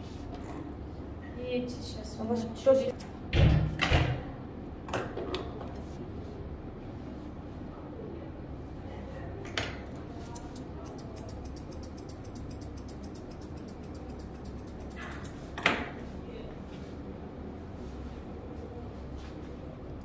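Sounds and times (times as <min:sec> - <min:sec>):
scissors snipping hair: 0:09.9 - 0:15.6.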